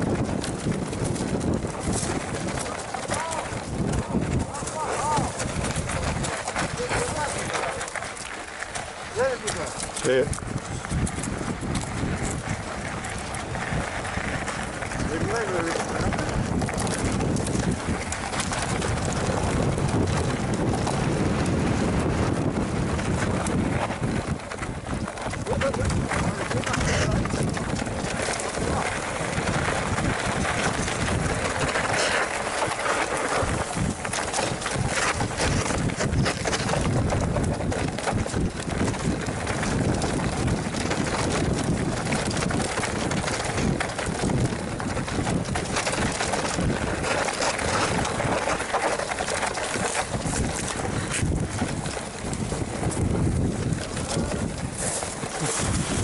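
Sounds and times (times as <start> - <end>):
bike rattling and knocking: 0.0 - 56.0
bike tyres crunching on dirt: 0.0 - 56.0
wind buffeting the microphone: 0.0 - 56.0.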